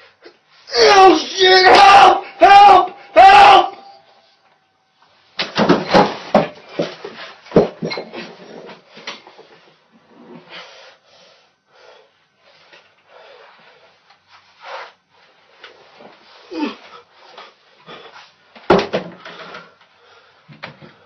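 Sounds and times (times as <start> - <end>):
man straining and crying out: 0.7 - 4.0, 16.5 - 16.8
man grunting and breathing: 16.5 - 17.0.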